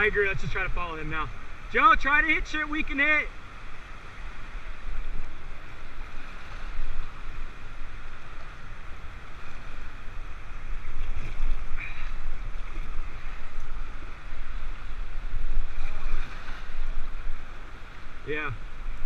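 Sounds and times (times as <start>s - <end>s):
wind rumbling on microphone: 0.0s - 19.0s
water splash: 15.5s - 17.2s.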